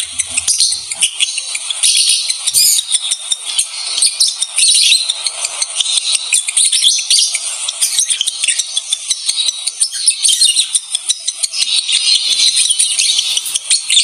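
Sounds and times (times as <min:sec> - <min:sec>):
bird chirping and squeaking: 0:00.0 - 0:14.0.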